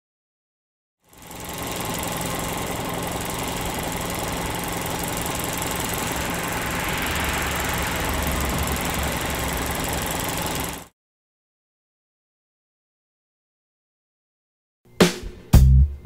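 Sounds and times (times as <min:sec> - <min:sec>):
car engine idling: 0:01.4 - 0:10.9.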